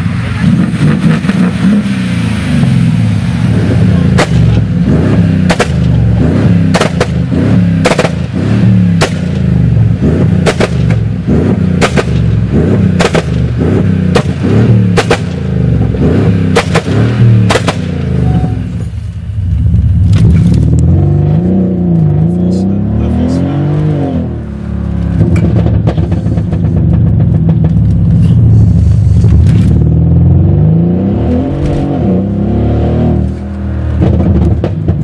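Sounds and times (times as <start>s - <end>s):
car engine revving: 0.0s - 35.0s
exhaust pops and bangs: 4.1s - 18.0s, 25.2s - 28.2s, 34.0s - 35.0s.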